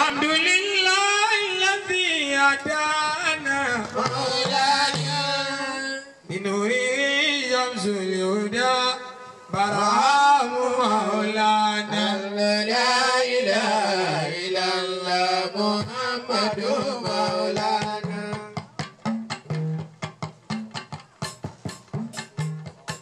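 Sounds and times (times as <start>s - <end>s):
person chanting a devotional melody: 0.0s - 18.7s
rapid drum strokes: 3.1s - 5.6s, 15.8s - 23.0s.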